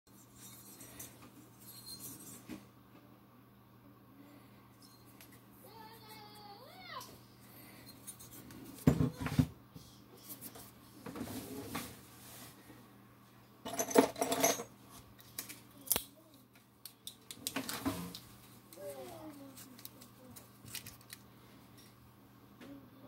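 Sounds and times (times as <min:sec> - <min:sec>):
metal parts clattering on workbench: 0:13.7 - 0:14.7.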